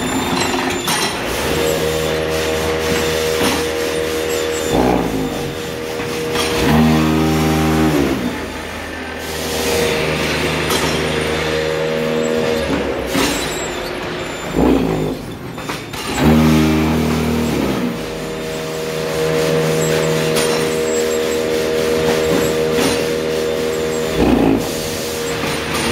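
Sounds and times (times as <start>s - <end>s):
metal clanks: 0.0s - 7.0s, 10.2s - 16.4s
machine motors humming: 0.0s - 25.9s.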